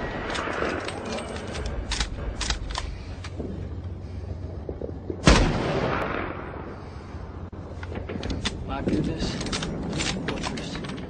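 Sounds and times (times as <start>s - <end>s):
gunshot with long echo: 5.2s - 6.8s.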